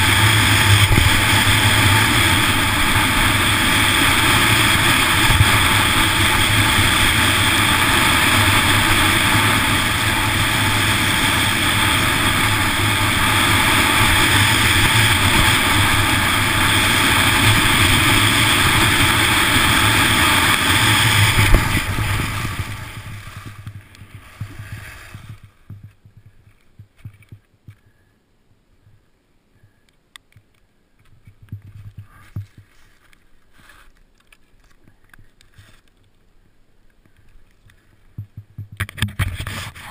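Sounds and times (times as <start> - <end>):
skis running on hard snow: 0.0 - 27.3
faint ticks: 28.8 - 39.0.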